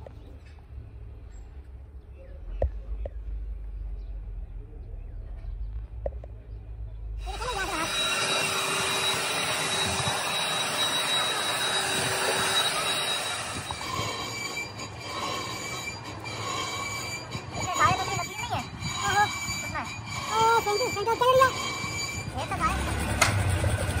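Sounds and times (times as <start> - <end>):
machine grinding metal screech: 7.2 - 24.0.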